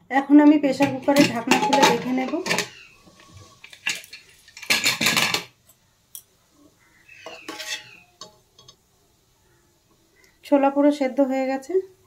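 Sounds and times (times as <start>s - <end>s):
spoon scraping metal pot: 0.7s - 5.5s, 7.2s - 8.8s.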